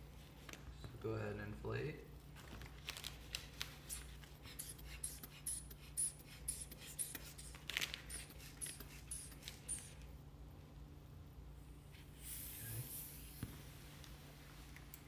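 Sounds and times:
hand bulb squeaking and puffing: 0:03.9 - 0:10.0.

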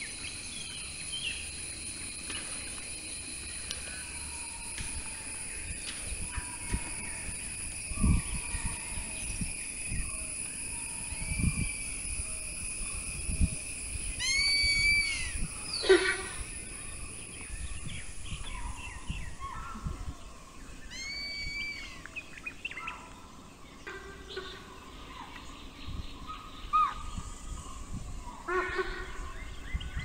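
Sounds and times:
birds whistling: 0:00.0 - 0:23.0
steady high hiss: 0:00.0 - 0:30.0.

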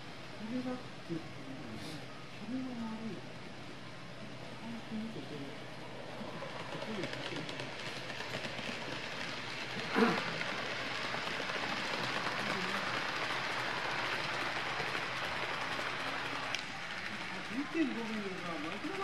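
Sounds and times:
model train wheels rattling: 0:06.1 - 0:19.0.

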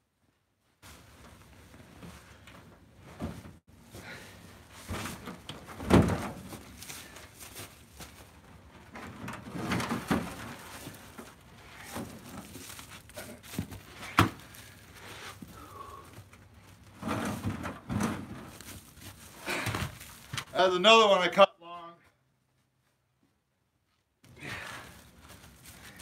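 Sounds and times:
firewood thudding onto stack: 0:13.5 - 0:14.6.

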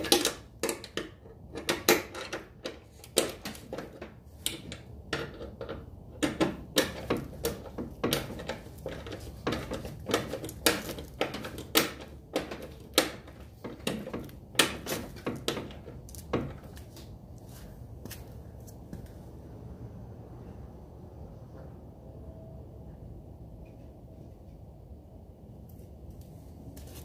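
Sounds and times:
hand tools clicking on metal: 0:00.0 - 0:16.7.

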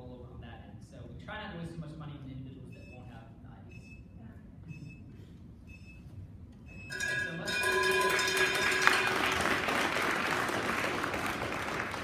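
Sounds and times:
audience applauding: 0:08.0 - 0:12.0.

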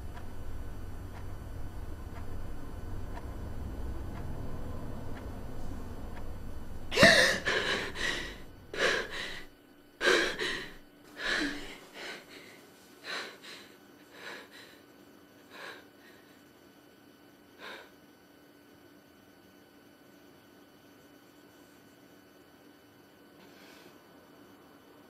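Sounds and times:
woman gasping: 0:06.9 - 0:14.8
woman panting: 0:06.9 - 0:14.9, 0:15.5 - 0:16.4, 0:17.6 - 0:18.0.

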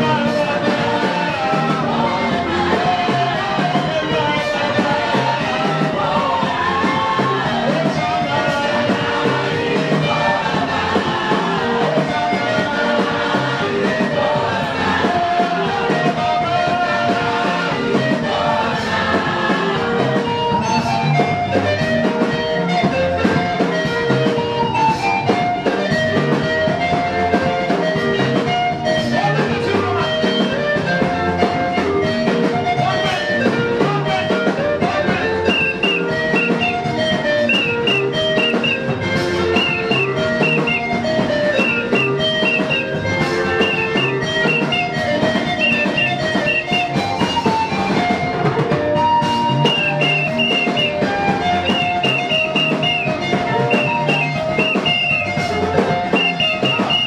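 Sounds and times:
man singing into microphone: 0:00.0 - 0:09.3, 0:32.7 - 0:36.0
amplified band playing: 0:00.0 - 0:57.0.

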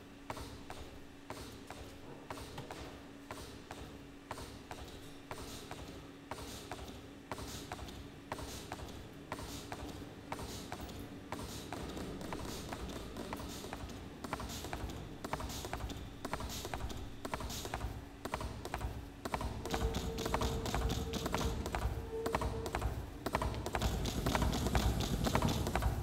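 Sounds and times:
milking machine pulsators clicking: 0:00.2 - 0:26.0
machine hum: 0:10.2 - 0:26.0
high steady tone: 0:19.7 - 0:22.8.

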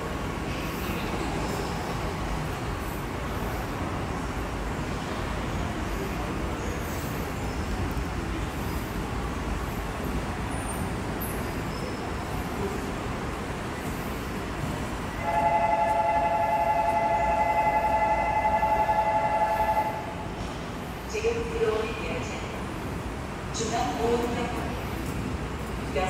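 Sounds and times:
station and tunnel rumble: 0:00.0 - 0:26.0
train horn chord: 0:15.2 - 0:20.1.

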